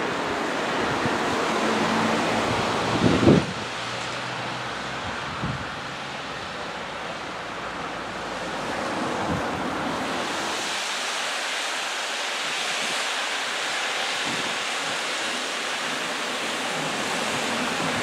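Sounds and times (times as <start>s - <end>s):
wind buffeting microphone: 0.0s - 4.0s, 4.9s - 6.0s, 8.9s - 10.8s.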